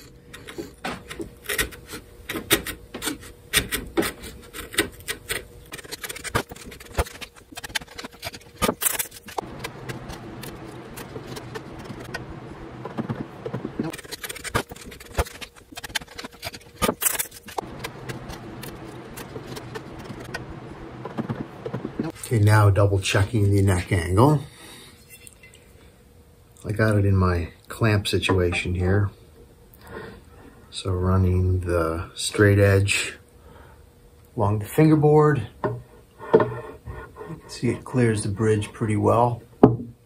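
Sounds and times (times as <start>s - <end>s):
chisel scraping wood: 0.0s - 22.1s, 36.2s - 37.8s
steady low hum: 0.0s - 40.0s
sandpaper scraping: 1.5s - 20.4s.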